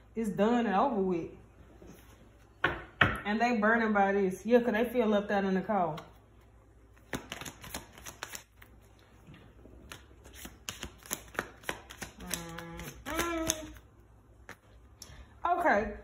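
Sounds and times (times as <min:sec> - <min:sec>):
cards being shuffled: 0:06.9 - 0:09.0, 0:09.7 - 0:14.7
person humming: 0:12.2 - 0:13.8.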